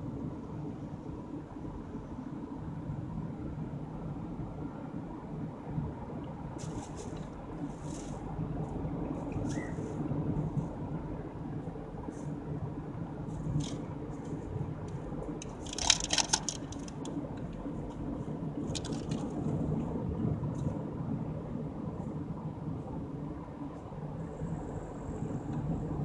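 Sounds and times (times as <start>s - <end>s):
car engine and road rumble: 0.0s - 26.0s
clicks and rattles: 15.4s - 17.2s, 18.7s - 19.3s.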